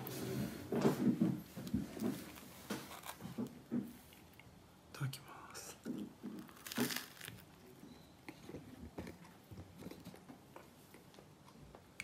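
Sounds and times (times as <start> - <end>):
soft chewing: 1.6 - 4.6, 5.4 - 12.0
crisp sandwich crunch: 6.2 - 7.7.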